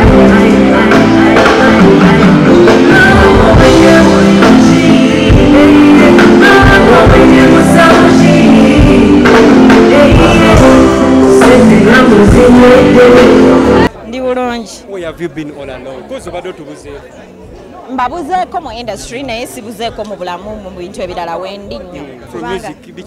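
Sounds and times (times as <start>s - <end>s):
singer over a steady beat: 0.0s - 13.9s.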